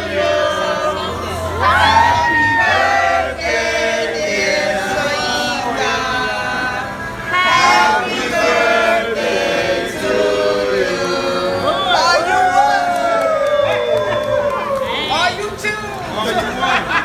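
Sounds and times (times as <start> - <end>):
group singing a birthday song: 0.0 - 13.2.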